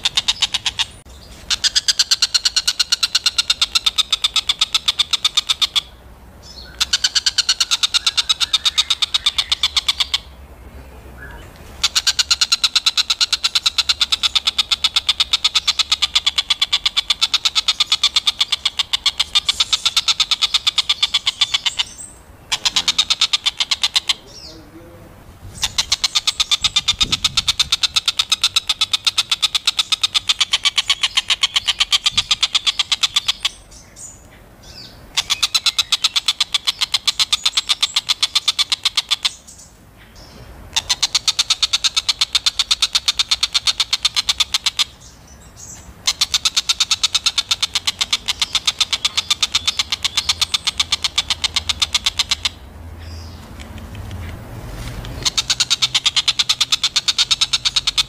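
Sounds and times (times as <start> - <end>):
bird chattering: 0.0 - 54.4, 55.0 - 58.0.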